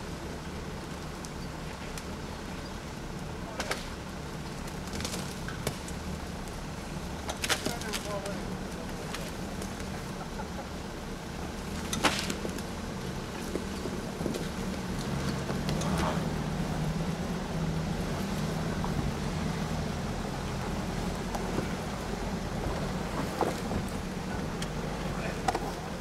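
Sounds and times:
car engine running at low speed: 0:00.0 - 0:26.0
vehicle clicks and knocks: 0:11.7 - 0:16.2.

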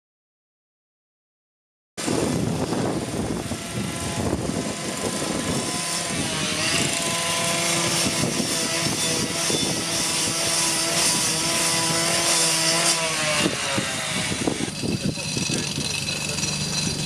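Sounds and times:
construction machinery drone: 0:02.0 - 0:17.0.

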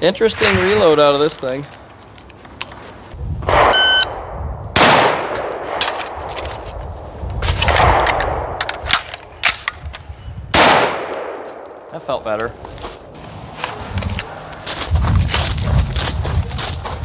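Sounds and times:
rifle shot: 0:03.5 - 0:06.3, 0:10.5 - 0:11.8
shot timer beep: 0:03.7 - 0:04.2
rifle handling noise: 0:05.3 - 0:10.1
magazine change clicks: 0:10.6 - 0:11.9.

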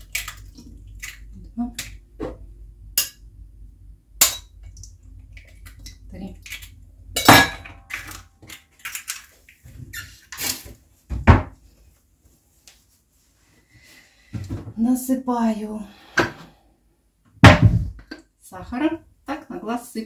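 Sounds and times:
kitchenware clattering and knocking: 0:07.2 - 0:08.2.

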